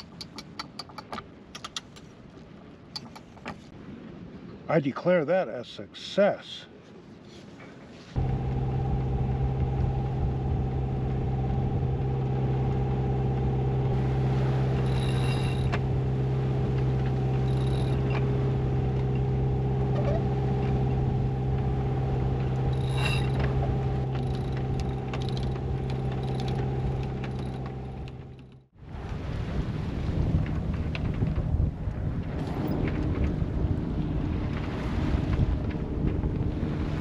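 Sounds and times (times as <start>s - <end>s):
steady mechanical hum: 8.2s - 28.6s
winch clicking and ratcheting: 14.7s - 15.8s, 16.7s - 19.3s, 22.4s - 28.6s.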